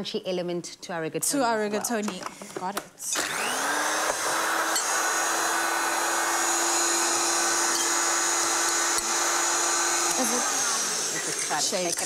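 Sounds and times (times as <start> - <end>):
blender motor whining: 3.1 - 12.0.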